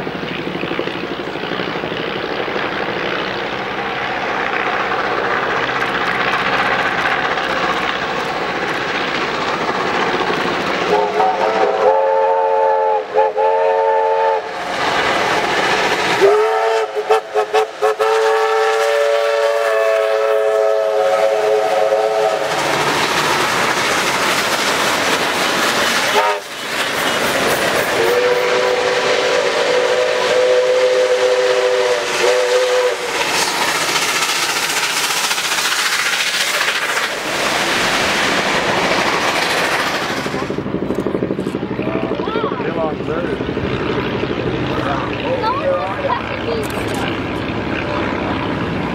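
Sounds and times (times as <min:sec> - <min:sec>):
steam locomotive exhaust and wheels: 0:00.0 - 0:48.9.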